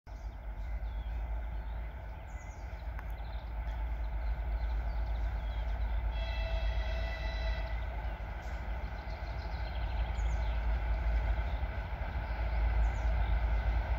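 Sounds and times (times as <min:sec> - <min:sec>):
birds chirping: 0:00.1 - 0:13.9
diesel locomotive rumble: 0:00.1 - 0:13.9
locomotive horn chord: 0:05.9 - 0:08.7.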